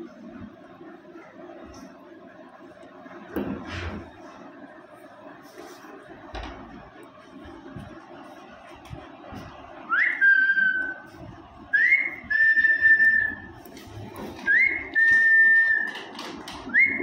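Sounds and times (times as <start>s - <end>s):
person whistling: 14.4s - 16.0s, 16.7s - 17.0s.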